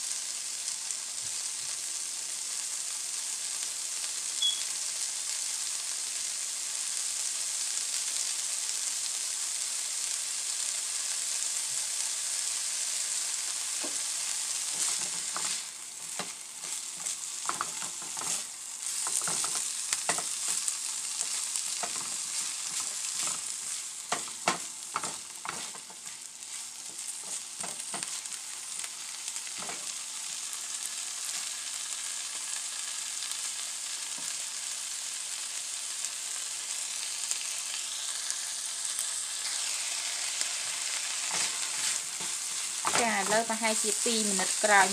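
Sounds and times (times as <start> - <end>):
food sizzling in a frying pan: 0.0 - 44.9
spatula scraping a pan: 13.8 - 28.8, 29.4 - 30.0, 39.4 - 43.5.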